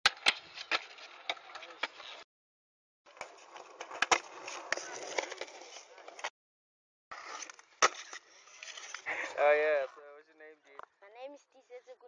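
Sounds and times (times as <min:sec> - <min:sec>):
skateboard wheels rolling on concrete: 0:00.1 - 0:02.2, 0:03.1 - 0:06.3
skateboard sliding on concrete ledge: 0:03.1 - 0:06.3, 0:07.1 - 0:09.7.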